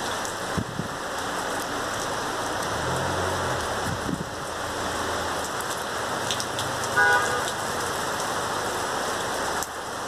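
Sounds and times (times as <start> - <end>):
heavy rain: 0.0 - 10.0.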